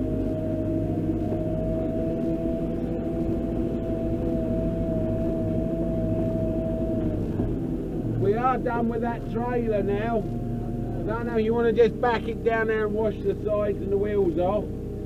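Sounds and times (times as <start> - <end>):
diesel engine drone: 0.0 - 15.0
high whine: 0.0 - 15.0.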